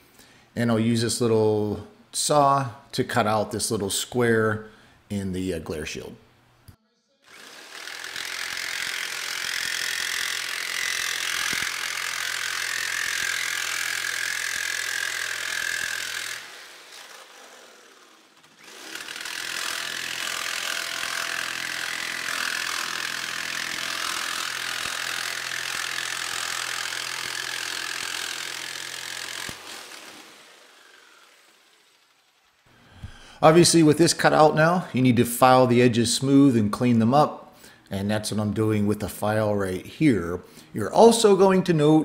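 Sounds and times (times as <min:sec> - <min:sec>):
jigsaw cutting aluminum sheet: 0:07.2 - 0:32.7.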